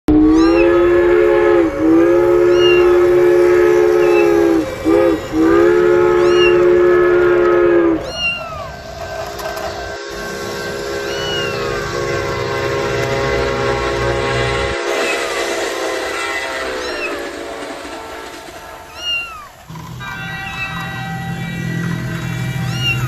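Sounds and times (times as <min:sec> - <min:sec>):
train horn blasts: 0:00.1 - 0:23.0
kitten mewing: 0:00.4 - 0:00.6, 0:02.5 - 0:03.0, 0:06.2 - 0:06.6, 0:08.0 - 0:08.7, 0:11.1 - 0:11.6, 0:18.9 - 0:19.5.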